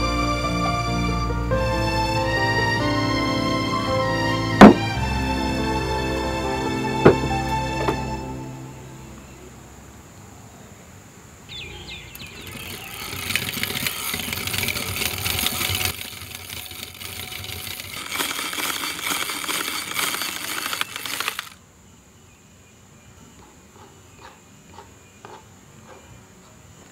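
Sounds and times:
wire beaters whipping cream in bowl: 0:12.2 - 0:21.6.

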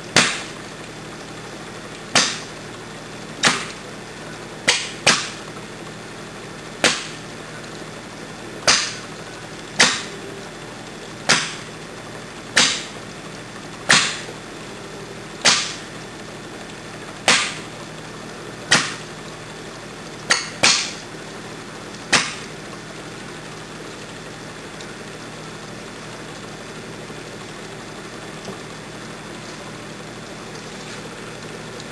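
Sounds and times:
gas igniting with sharp pops: 0:02.1 - 0:02.5, 0:03.4 - 0:03.8, 0:04.6 - 0:05.5, 0:12.6 - 0:13.0, 0:15.4 - 0:15.9, 0:17.2 - 0:17.7.

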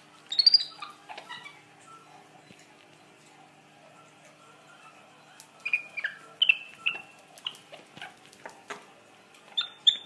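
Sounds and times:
monkey squeaking: 0:00.3 - 0:01.6, 0:05.6 - 0:08.2, 0:09.5 - 0:10.0.

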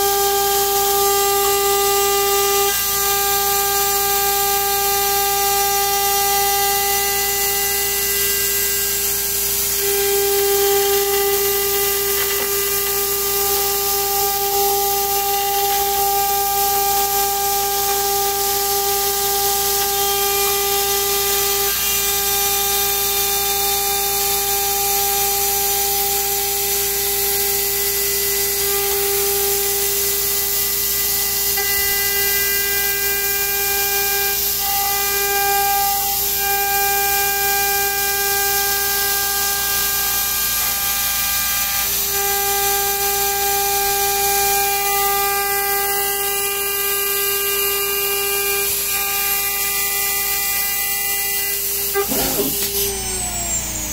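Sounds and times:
end mill cutting metal: 0:00.0 - 0:53.9
router spindle high-pitched whine: 0:00.0 - 0:53.9.

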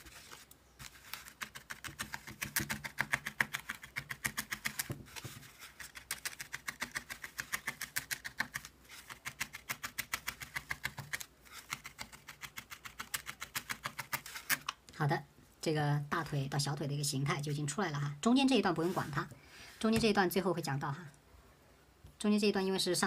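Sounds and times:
felting needle clicking: 0:05.8 - 0:15.0.

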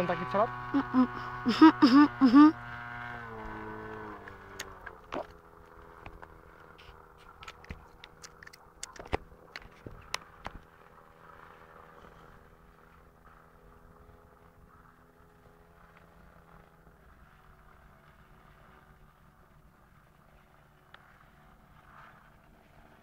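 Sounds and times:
distant airplane engine droning: 0:00.0 - 0:23.0
sharp clicks and taps: 0:07.4 - 0:10.6.

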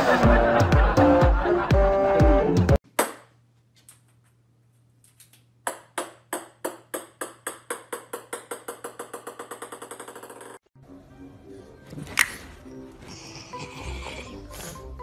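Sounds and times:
ball bouncing on wooden floor: 0:05.6 - 0:10.5.

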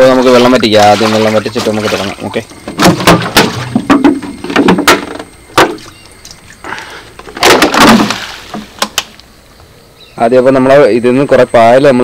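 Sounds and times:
water splashing: 0:00.0 - 0:03.6, 0:07.4 - 0:08.8
rush of water thrown out: 0:07.4 - 0:08.8.

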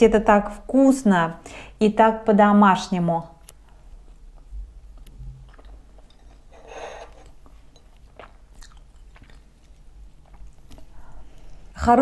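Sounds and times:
person chewing: 0:03.4 - 0:11.6.

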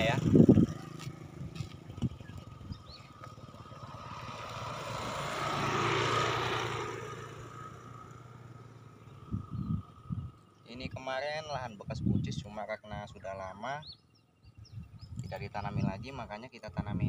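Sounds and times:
motorcycle passing by: 0:00.0 - 0:11.0.

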